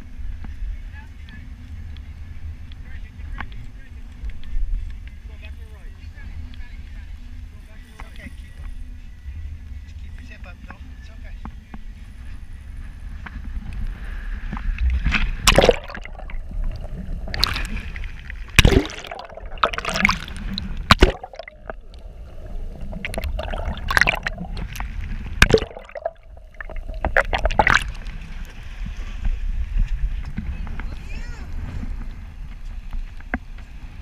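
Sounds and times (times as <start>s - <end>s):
steady low rumble: 12.4s - 30.9s
seawater sloshing and gurgling: 13.4s - 30.1s
sharp water splashes: 14.6s - 28.4s.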